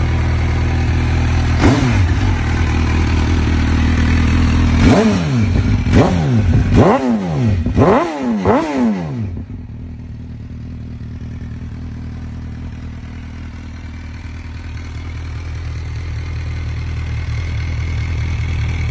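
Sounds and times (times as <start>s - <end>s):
motorcycle engine revving and idling: 0.0s - 18.9s.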